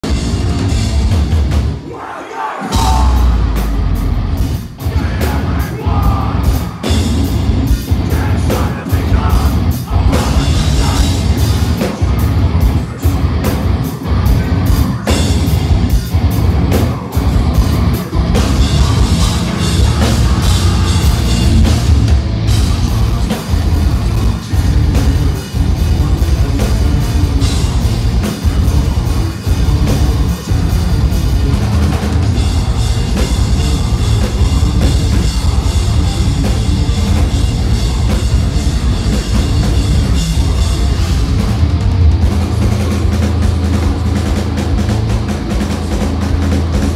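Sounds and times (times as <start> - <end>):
bass drum pounding: 0.0 - 1.8, 2.7 - 46.9
distorted guitars: 0.0 - 46.9
metal band playing live: 0.0 - 46.9
vocalist screaming: 1.8 - 3.6.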